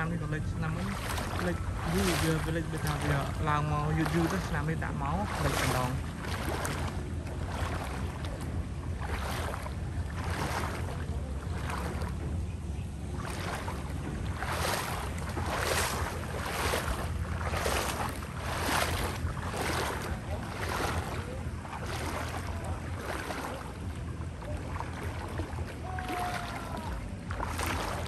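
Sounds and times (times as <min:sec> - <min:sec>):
rushing water noise: 0:00.0 - 0:28.0
small boat motor running: 0:00.0 - 0:28.0.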